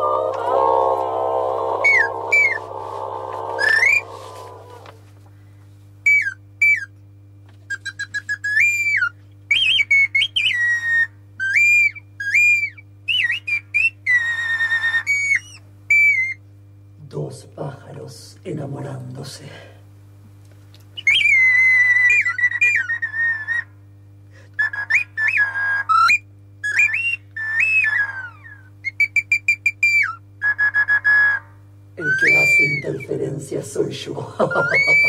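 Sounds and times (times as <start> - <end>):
droning musical chord: 0.0 - 4.9
high whistled notes: 0.0 - 4.9, 21.0 - 23.7, 24.6 - 33.2, 34.4 - 35.0
staccato pips: 32.0 - 33.3, 34.2 - 35.0.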